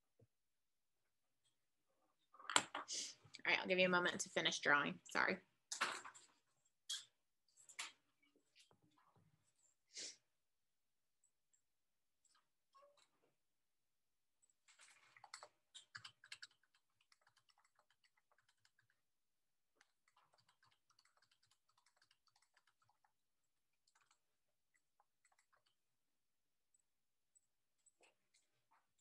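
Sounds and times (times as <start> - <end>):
faint typing on keyboard: 14.4 - 25.9.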